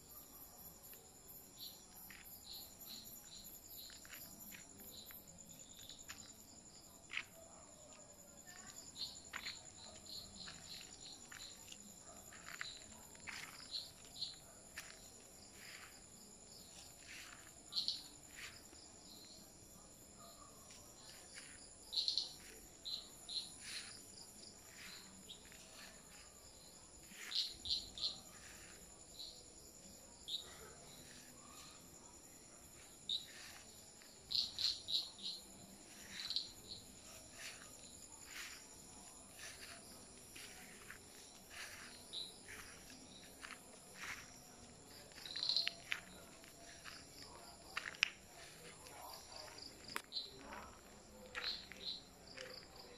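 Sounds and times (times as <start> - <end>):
crickets trilling: 0.0 - 52.9
short insect chirps: 34.3 - 44.4, 45.0 - 46.8.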